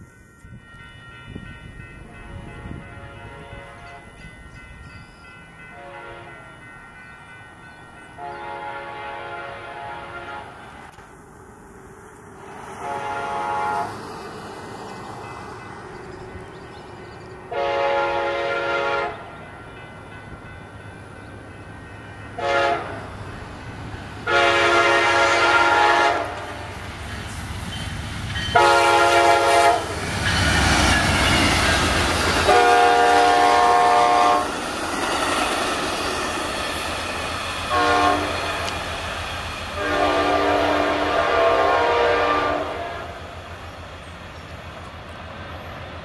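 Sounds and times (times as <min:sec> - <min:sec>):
train air horn blasts: 0:02.0 - 0:04.1, 0:05.7 - 0:06.5, 0:08.2 - 0:10.7, 0:12.8 - 0:14.0, 0:17.5 - 0:19.3, 0:22.4 - 0:23.1, 0:24.2 - 0:26.8, 0:28.5 - 0:30.0, 0:32.4 - 0:34.5, 0:37.7 - 0:38.8, 0:39.8 - 0:43.4
train wheels clattering on rails: 0:19.4 - 0:41.0.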